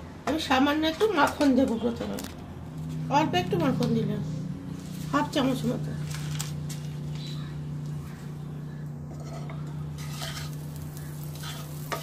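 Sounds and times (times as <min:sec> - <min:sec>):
steady low hum: 0:01.8 - 0:12.0
wooden spatula scraping frying pan: 0:09.1 - 0:12.0.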